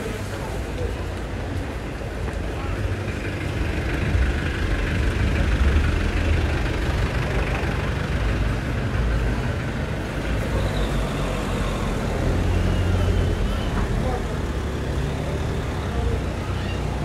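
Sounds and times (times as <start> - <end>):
city street noise: 0.0 - 17.0
vehicle engines rumbling: 0.0 - 17.0.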